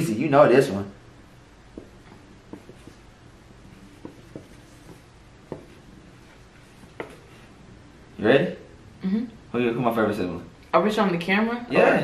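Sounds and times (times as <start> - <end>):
marker writing on whiteboard: 1.7 - 3.1, 3.7 - 7.5.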